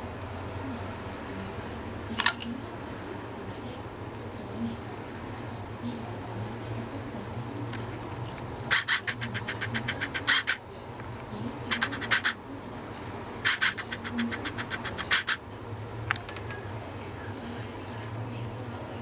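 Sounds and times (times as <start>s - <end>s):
parrot beak clicking and scratching: 5.2s - 18.2s.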